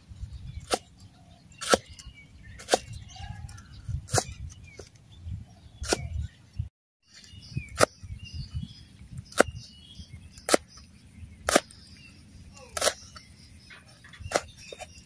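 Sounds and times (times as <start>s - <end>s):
faint birds chirping: 0.0s - 15.0s
cleaver chopping on wooden board: 1.6s - 2.0s, 2.6s - 2.9s, 9.3s - 9.6s, 10.4s - 10.8s, 11.5s - 11.7s, 12.7s - 13.2s.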